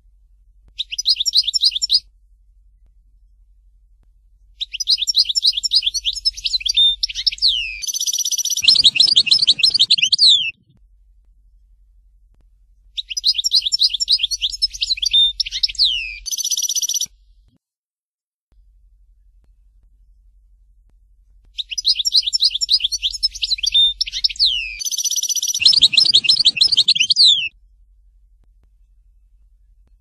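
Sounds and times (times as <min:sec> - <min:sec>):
bird twittering song: 0:00.8 - 0:02.0, 0:04.6 - 0:10.6, 0:13.0 - 0:17.1, 0:21.6 - 0:27.5.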